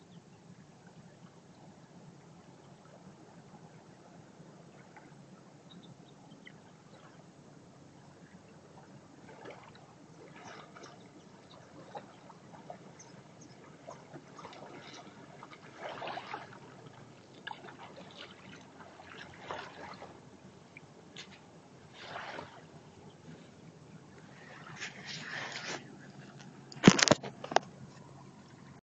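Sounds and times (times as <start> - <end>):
footsteps splashing in shallow water: 9.3 - 20.2.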